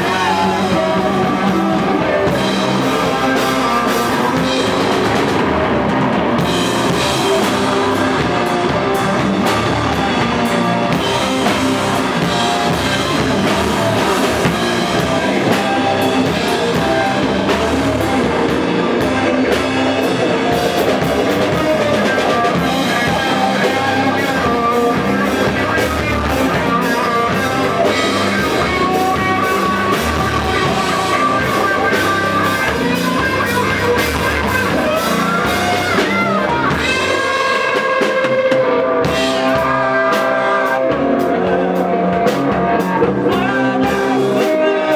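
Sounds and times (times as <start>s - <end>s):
live rock band playing: 0.0s - 44.9s.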